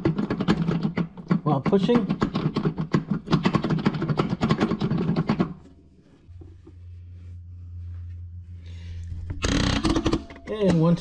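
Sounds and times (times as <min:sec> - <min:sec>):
metal rattling and clicking: 0:00.0 - 0:05.7
faint low hum: 0:05.0 - 0:11.0.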